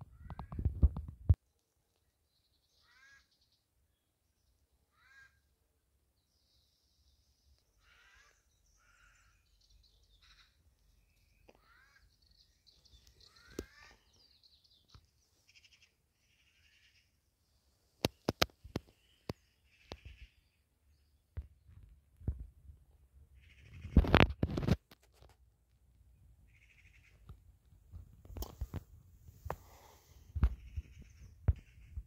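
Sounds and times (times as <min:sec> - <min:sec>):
faint descending bird calls: 0:02.6 - 0:03.6, 0:07.7 - 0:17.3
high bird chirps: 0:07.7 - 0:17.0.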